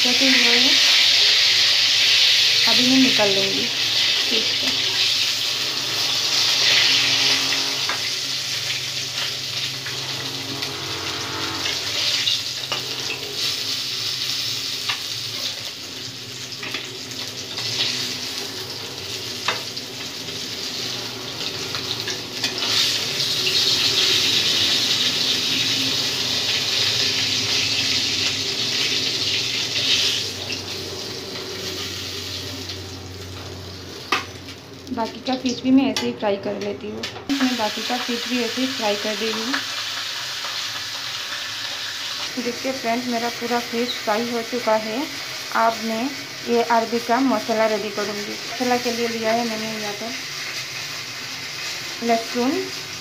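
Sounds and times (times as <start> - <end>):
fish sizzling in hot oil: 0.0 - 35.6, 37.3 - 53.0.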